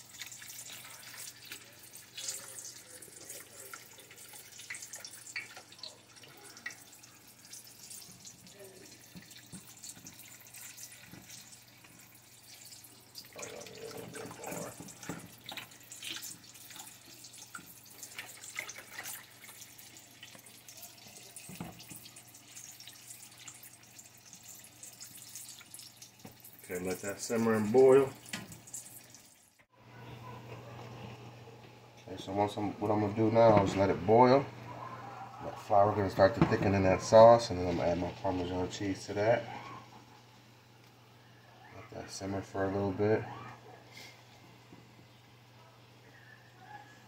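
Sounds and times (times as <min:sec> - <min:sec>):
sauce sloshing and bubbling: 0:00.0 - 0:29.4.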